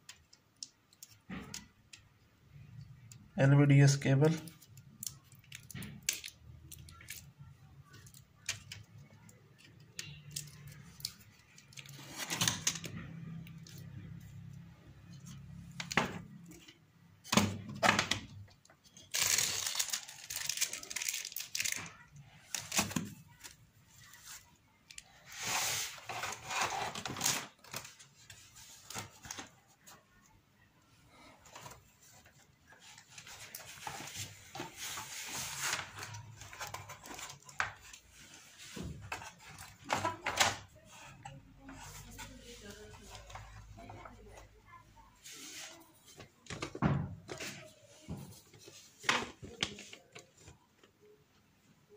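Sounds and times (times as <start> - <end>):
rustling sliding noises: 24.0 - 27.4, 31.3 - 39.6, 45.2 - 46.2.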